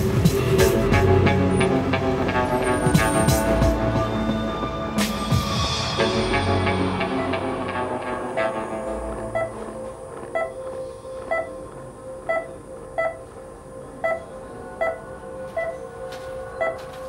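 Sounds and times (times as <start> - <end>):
steady low tone: 0.0 - 17.0
heart monitor beeping: 8.8 - 17.0.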